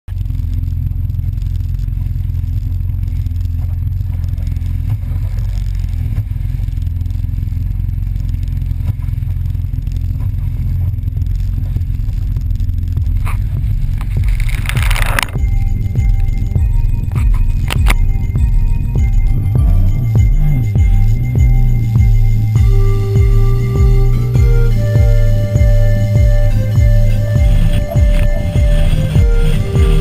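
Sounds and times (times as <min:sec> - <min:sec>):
muffled jet ski engine rumble: 0:00.1 - 0:30.0.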